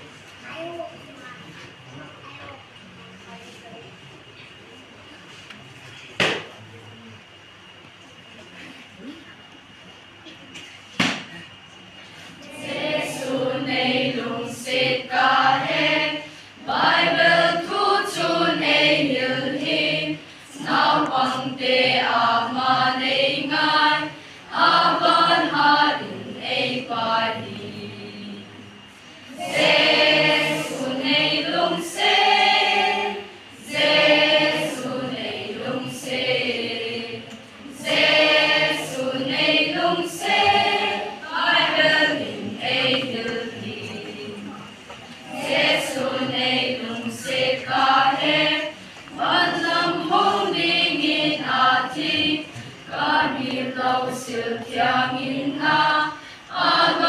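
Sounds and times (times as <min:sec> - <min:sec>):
children's choir singing: 0:12.1 - 0:57.0.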